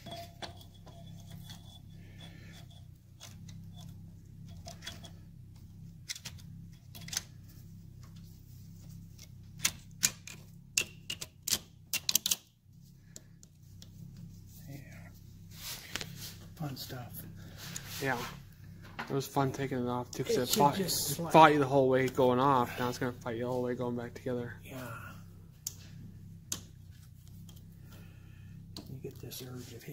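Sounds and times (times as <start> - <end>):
sharp metallic clicks and taps: 9.6 - 12.5.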